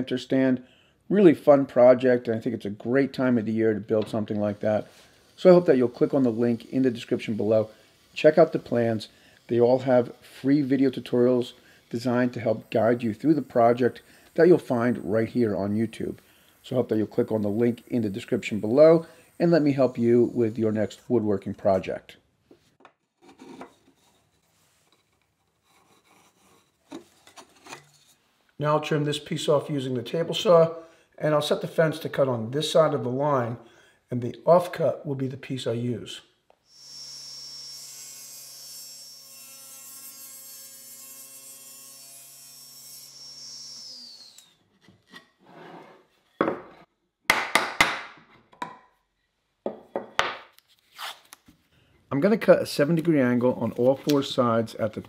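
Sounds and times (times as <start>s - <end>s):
pencil scraping on wood: 23.2s - 27.0s.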